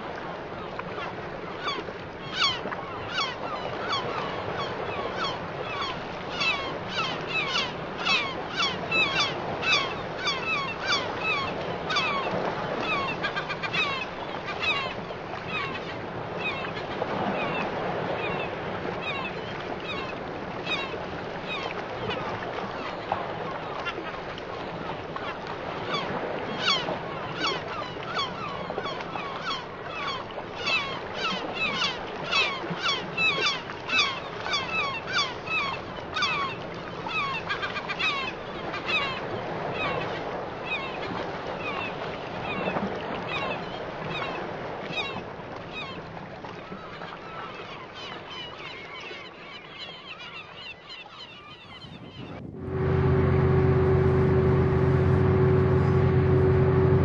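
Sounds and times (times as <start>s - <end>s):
birds calling: 50.6s - 57.0s.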